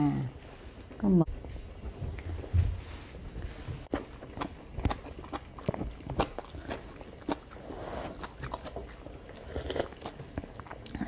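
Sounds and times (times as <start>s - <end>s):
person chewing: 3.4s - 11.0s.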